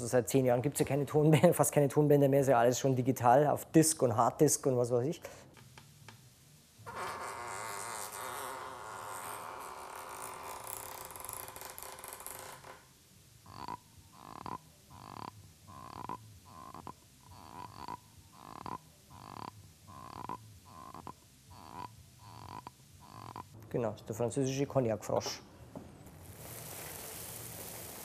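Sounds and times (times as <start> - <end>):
creaking door sound from tape: 6.8 - 12.9
glass frog-like croaks: 13.4 - 23.6.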